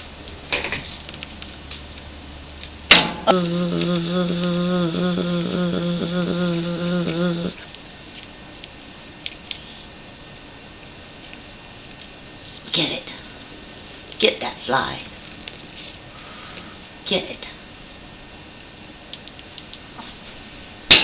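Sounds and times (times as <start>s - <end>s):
fly buzzing close up: 3.3s - 7.6s.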